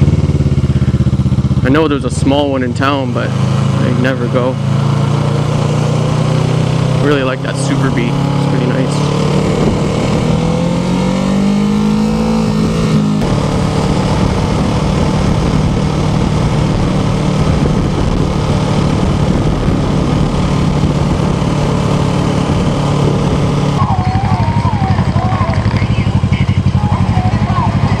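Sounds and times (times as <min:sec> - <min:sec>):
motorcycle engine accelerating: 0:00.0 - 0:28.0
wind and road noise: 0:00.0 - 0:28.0.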